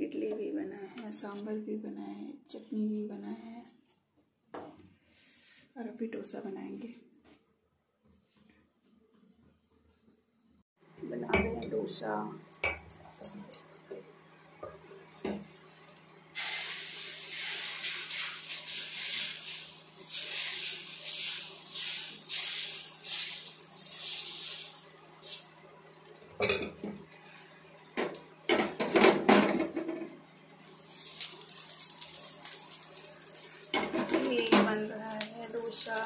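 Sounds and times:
batter sizzling on hot pan: 16.3s - 27.8s, 30.6s - 36.0s
metal utensils clanking: 26.4s - 26.9s, 31.0s - 34.9s.

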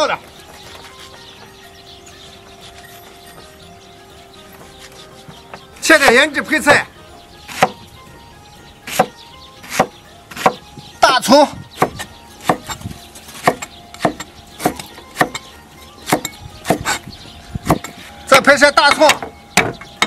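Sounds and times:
cleaver chopping on wooden block: 7.4s - 7.8s, 8.8s - 10.8s, 11.7s - 17.0s, 17.6s - 18.1s, 18.9s - 20.0s.

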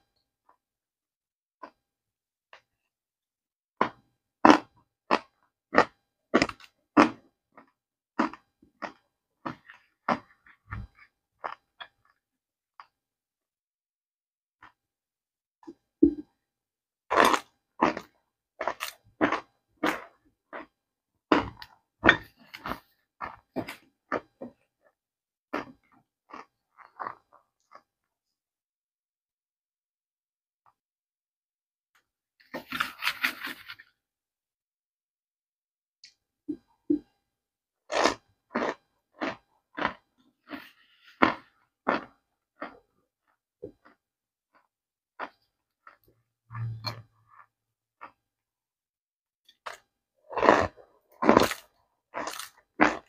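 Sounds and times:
cornstarch lumps crunching: 3.8s - 12.2s, 17.1s - 27.9s, 32.4s - 34.0s, 37.9s - 48.2s, 49.5s - 53.0s.

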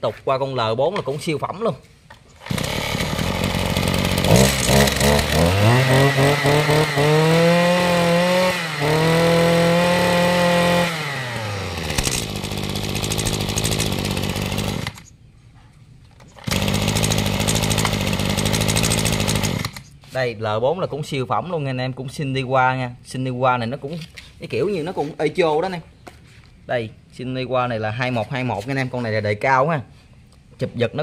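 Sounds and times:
brush cutter engine revving: 2.4s - 15.1s, 16.3s - 20.0s.

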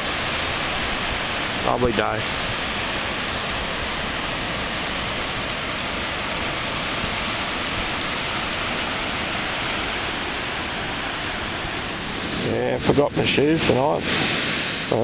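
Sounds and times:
ocean surf rushing: 0.0s - 15.0s.

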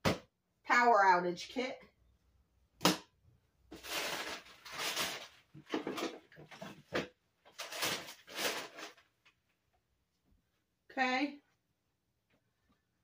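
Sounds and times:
plastic containers rustling and scraping: 3.7s - 9.1s.

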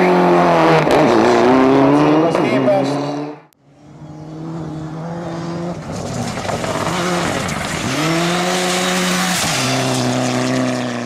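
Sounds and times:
rally car engine at high revs: 0.0s - 11.0s.

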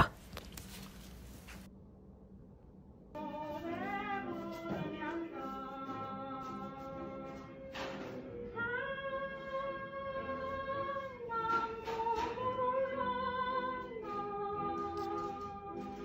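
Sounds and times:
woman singing slow song: 8.5s - 16.0s.

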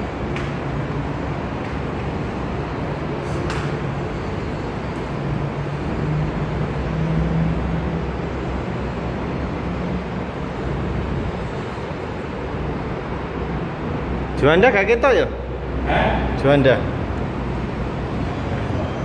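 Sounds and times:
distant road traffic: 0.0s - 19.0s
low droning hum: 15.3s - 19.0s.

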